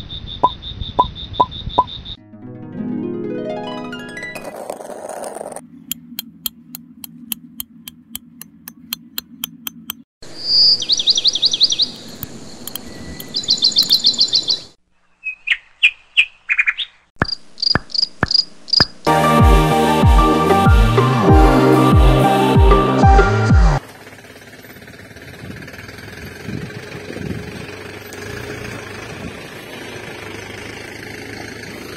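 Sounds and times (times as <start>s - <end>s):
birds chirping: 0.0s - 2.2s, 5.6s - 19.1s
steady ticking: 5.9s - 10.1s
music with a heavy beat: 19.1s - 23.8s.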